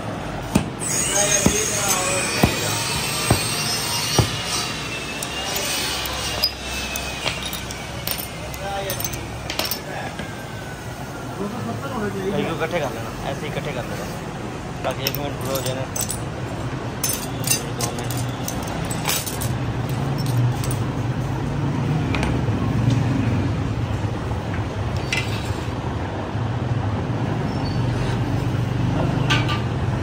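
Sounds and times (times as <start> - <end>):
mirror glass pieces clinking: 0.8 - 9.9, 14.9 - 16.3, 17.0 - 20.9.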